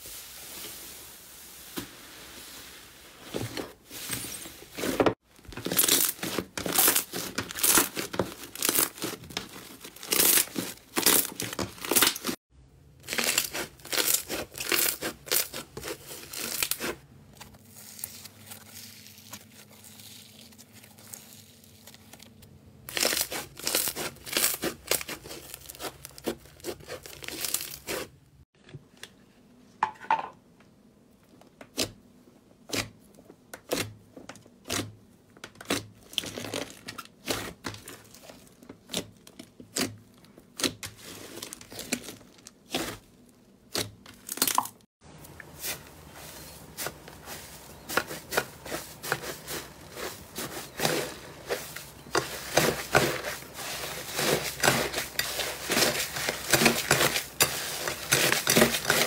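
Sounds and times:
slime tearing and crinkling: 0:05.4 - 0:12.4, 0:13.0 - 0:17.0, 0:17.6 - 0:28.2, 0:35.6 - 0:44.8, 0:46.6 - 0:59.0
slime crackling and popping: 0:05.6 - 0:12.4, 0:13.0 - 0:16.9, 0:17.8 - 0:28.1.

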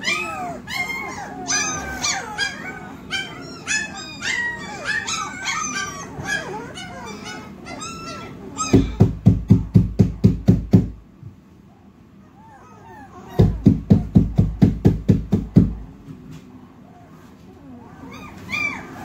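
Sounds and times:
puppies yelping and whining: 0:00.0 - 0:09.3, 0:11.7 - 0:14.6, 0:16.8 - 0:19.0
fast loud knocks: 0:08.7 - 0:11.0, 0:13.4 - 0:15.9.

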